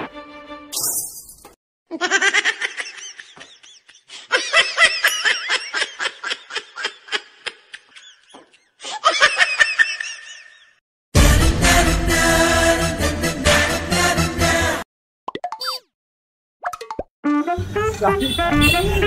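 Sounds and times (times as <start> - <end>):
rapid laughter: 1.9 - 10.7.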